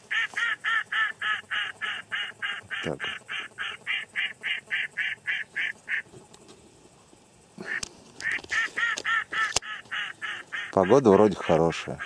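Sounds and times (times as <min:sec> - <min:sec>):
duck call quacks: 0:00.1 - 0:06.1, 0:07.6 - 0:12.0.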